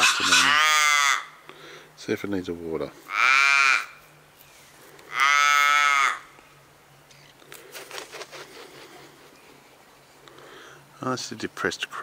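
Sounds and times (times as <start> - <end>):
crow cawing: 0.0 - 1.4, 3.1 - 4.0, 5.1 - 6.3.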